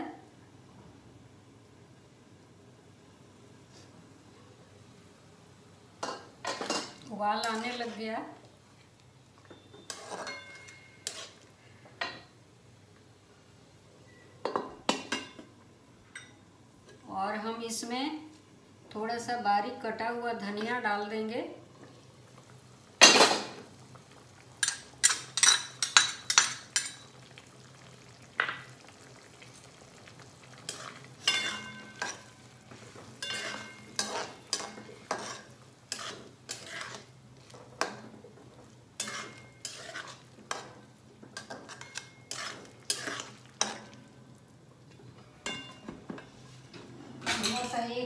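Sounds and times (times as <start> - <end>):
spatula ringing on metal pan: 9.8 - 11.1, 31.3 - 32.2, 33.2 - 34.7
metal spatula scraping a pan: 9.8 - 11.4, 30.7 - 38.0, 39.0 - 40.8, 41.4 - 44.0.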